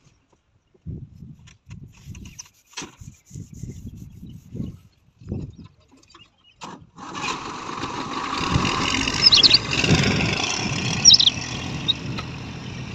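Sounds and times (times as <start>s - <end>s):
backhoe diesel engine running: 7.2s - 12.9s
birds chirping: 8.4s - 12.9s.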